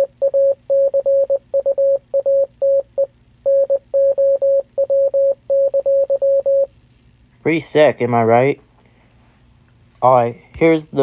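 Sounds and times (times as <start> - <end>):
morse code beeps: 0.0 - 6.7.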